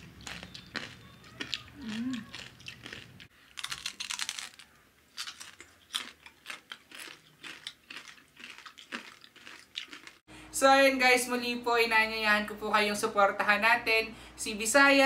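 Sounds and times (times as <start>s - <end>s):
chewing crispy skin: 0.0s - 10.2s.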